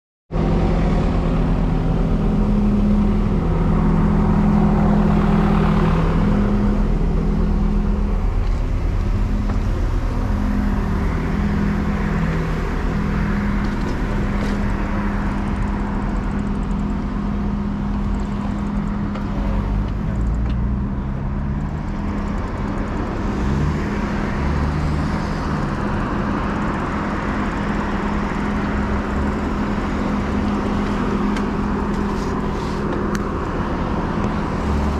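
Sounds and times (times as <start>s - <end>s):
engine tone rising and falling: 0.3s - 34.9s
road traffic rumble: 0.3s - 34.9s.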